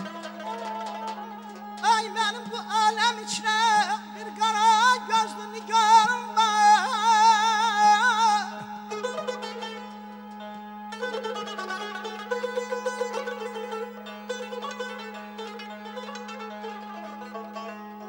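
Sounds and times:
man singing with trills: 0.0s - 10.0s
plucked lute: 0.0s - 18.0s.

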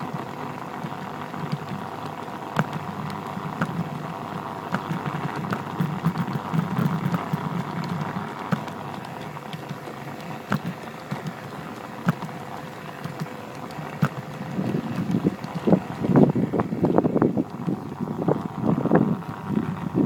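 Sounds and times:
model train motor hum and whine: 0.0s - 20.0s
wheels clicking on rails: 0.0s - 20.0s.

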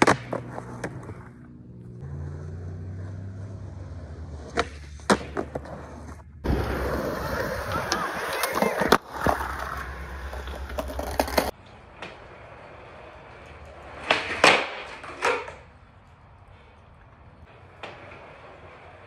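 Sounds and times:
skateboard tail popping and landing: 0.0s - 1.3s, 4.4s - 12.2s, 13.8s - 15.7s
skateboard wheels rolling on concrete: 0.0s - 19.0s.

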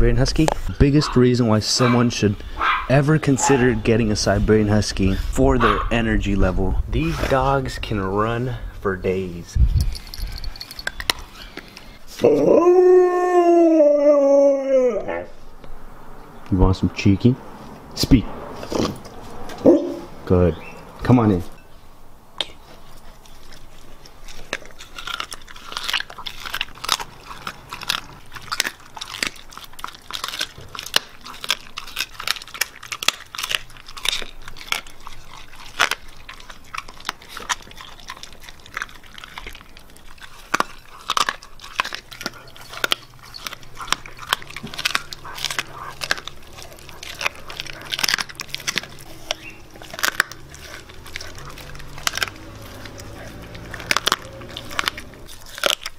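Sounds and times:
dog crunching bone: 0.0s - 12.5s, 17.6s - 21.6s, 22.4s - 55.9s.

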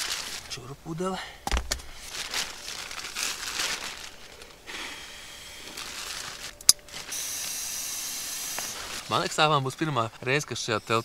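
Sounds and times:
nylon sack crinkling: 0.0s - 0.7s, 1.5s - 7.6s, 8.6s - 10.1s
air hissing: 4.6s - 9.3s.

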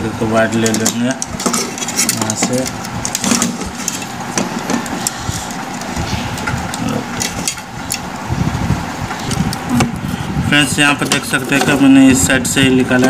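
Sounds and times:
clicks knocks and rustles of handling: 0.6s - 8.0s
low rumble: 5.0s - 10.5s.

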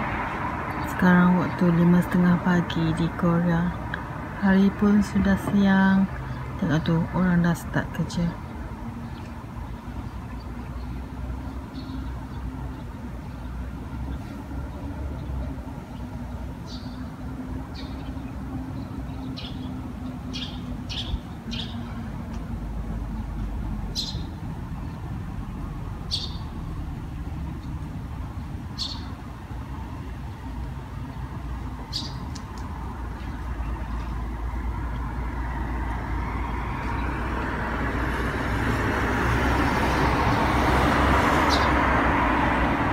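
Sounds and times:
low traffic rumble: 0.0s - 42.9s
vehicle approaching: 0.0s - 42.9s
small birds chirping: 0.3s - 25.2s, 26.0s - 26.7s, 28.7s - 34.4s, 41.3s - 41.9s.

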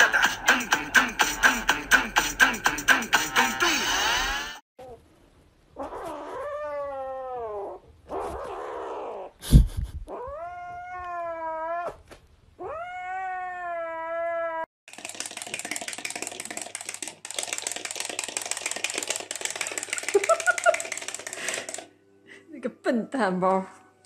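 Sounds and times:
kitten yowling: 5.8s - 9.3s, 10.1s - 12.0s, 12.6s - 14.7s.

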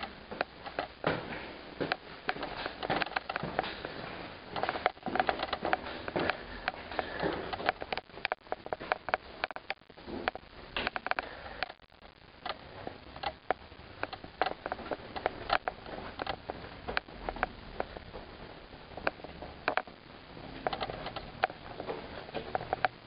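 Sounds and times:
footsteps on hard floor: 0.4s - 7.8s.

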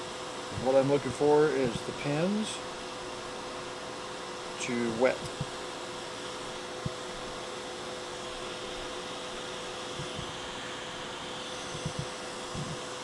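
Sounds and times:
hot air blower hissing: 0.0s - 13.0s
soft low thumps: 11.7s - 12.8s.

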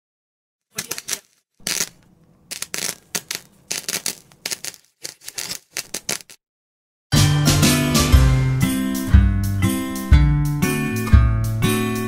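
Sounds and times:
sharp clicks and crackles: 0.7s - 6.4s.

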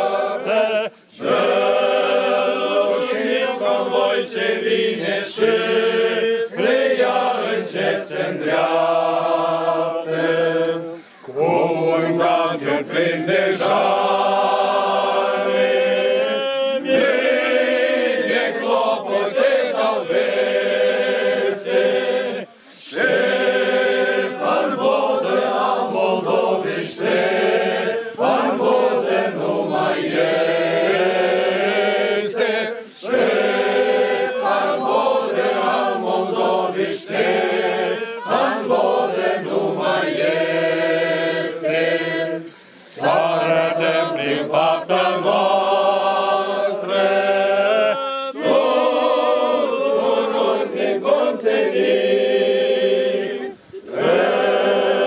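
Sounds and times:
group of voices singing: 0.0s - 55.0s.

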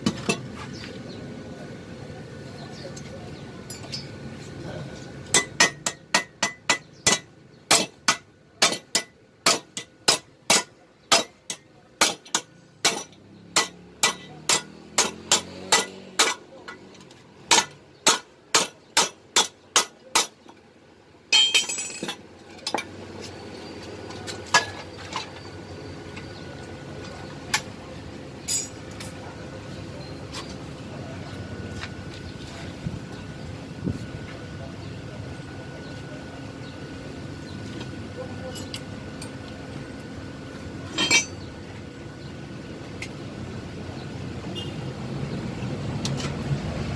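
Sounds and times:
hammer striking steel: 5.3s - 16.9s, 17.5s - 20.4s, 21.3s - 22.9s, 40.9s - 41.4s.

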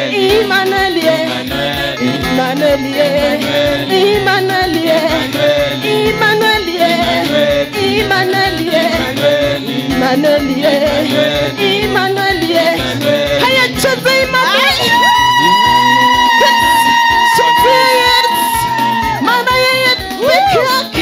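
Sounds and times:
woman singing into microphone: 0.0s - 21.0s
steady beat: 0.2s - 21.0s.

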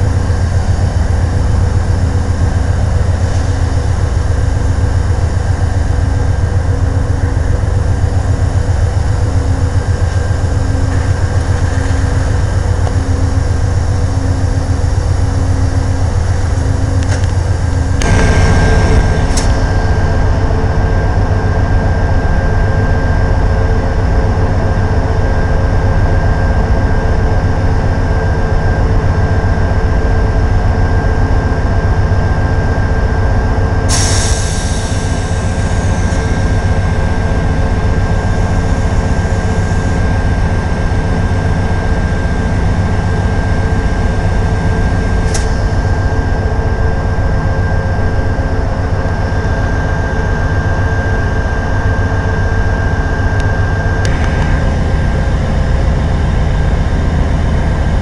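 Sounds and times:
diesel locomotive idling: 0.0s - 58.0s
sharp air hiss: 33.9s - 36.2s
air hissing: 33.9s - 36.3s.

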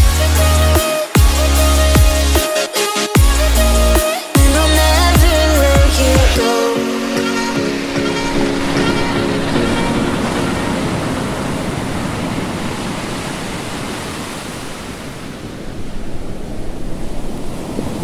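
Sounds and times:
background music: 0.0s - 11.5s
ocean surf on a beach: 6.4s - 18.0s.

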